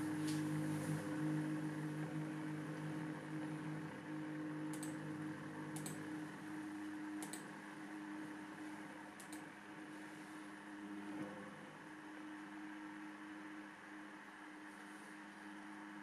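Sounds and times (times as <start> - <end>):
model locomotive drive hum: 0.0 - 16.0
light paired clicks: 9.2 - 9.4.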